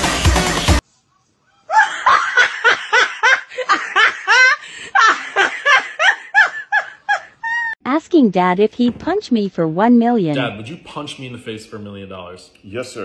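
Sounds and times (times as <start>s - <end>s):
dance music: 0.0s - 0.8s
person laughing high-pitched: 1.7s - 7.8s.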